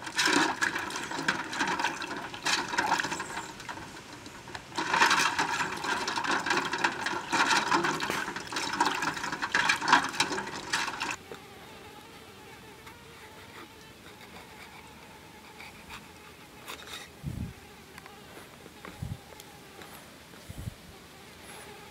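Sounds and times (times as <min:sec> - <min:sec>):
water splashing in steel bowl: 0:00.0 - 0:11.2
faint insect buzzing: 0:10.4 - 0:21.9.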